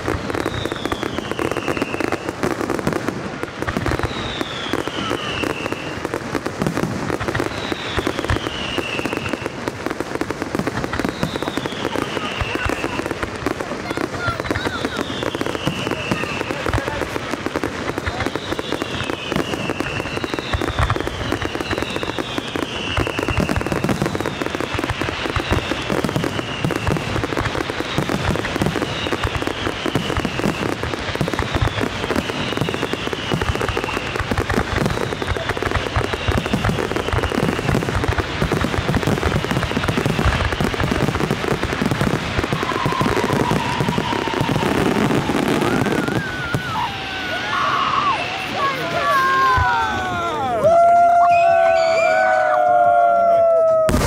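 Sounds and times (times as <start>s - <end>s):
fireworks popping: 0.0s - 54.0s
falling firework whistles: 0.1s - 2.8s, 3.7s - 9.6s, 10.5s - 13.2s, 13.8s - 54.0s.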